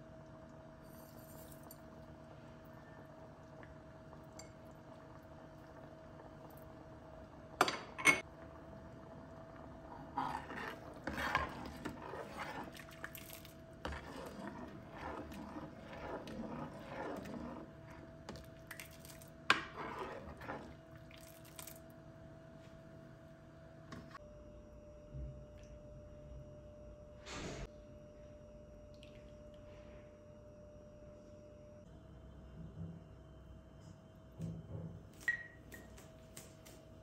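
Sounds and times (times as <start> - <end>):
faint hum: 0.0 - 37.0
ladle stirring thick soup: 8.3 - 21.9.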